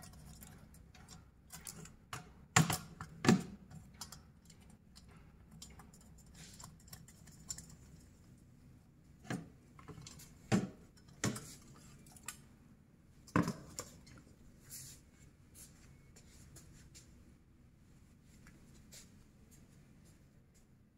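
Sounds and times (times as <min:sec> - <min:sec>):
small hard parts clicking and knocking: 0:00.0 - 0:08.3.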